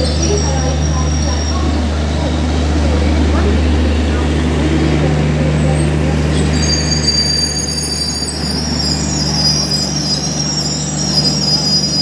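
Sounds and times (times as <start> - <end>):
train wheels squealing: 0.0 - 2.0, 6.3 - 12.0
low generator hum: 0.0 - 6.6.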